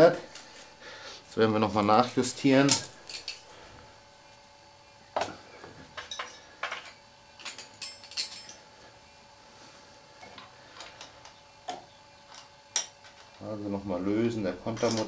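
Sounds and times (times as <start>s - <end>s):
metal tools clinking: 1.6s - 3.6s, 6.0s - 8.7s, 14.6s - 15.0s.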